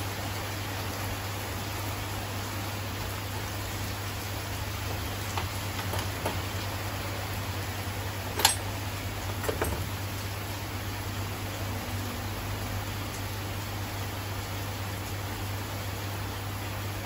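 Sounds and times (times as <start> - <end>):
rain hissing: 0.0 - 17.0
metal tools clicking: 8.4 - 8.6.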